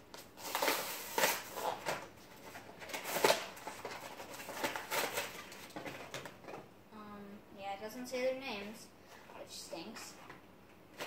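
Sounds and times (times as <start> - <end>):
plastic packaging crinkling: 0.4 - 6.4.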